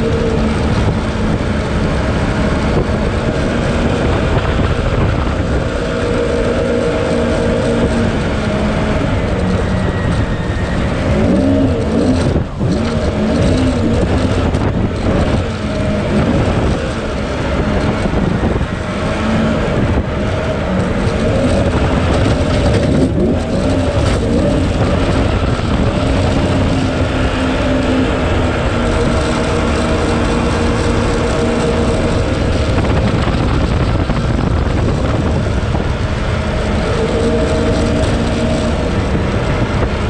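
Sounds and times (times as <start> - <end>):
jet boat engine running: 0.0 - 40.0
wind: 0.0 - 40.0.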